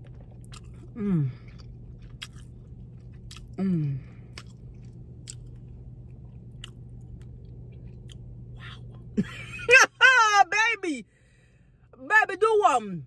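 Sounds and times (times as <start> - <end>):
person chewing crisp pizza: 0.0 - 9.2
steady low hum: 0.0 - 13.0
person humming mm: 3.6 - 4.0.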